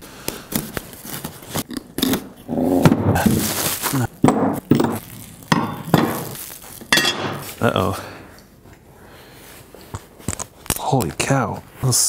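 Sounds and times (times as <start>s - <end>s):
plastic packaging rustling: 0.3s - 1.7s, 3.1s - 7.9s.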